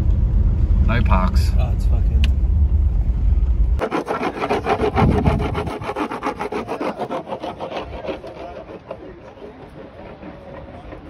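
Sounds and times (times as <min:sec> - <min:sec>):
wax scraping on surfboard: 0:03.8 - 0:11.0.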